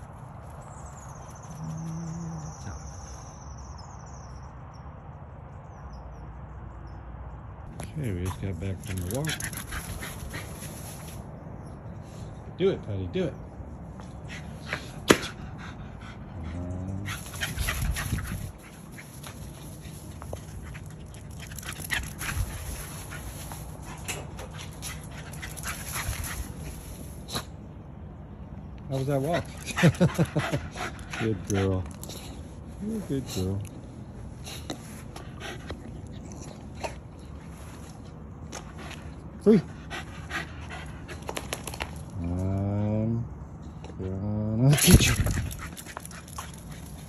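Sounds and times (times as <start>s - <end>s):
outdoor background noise: 0.0s - 47.0s
dog paws scuffing on grass: 22.2s - 27.3s.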